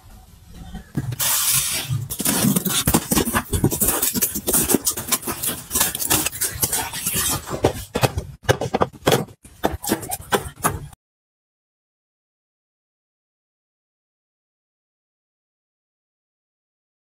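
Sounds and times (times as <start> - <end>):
cardboard flaps scraping and rustling: 1.0 - 10.8
packing tape pulled off: 1.2 - 7.4.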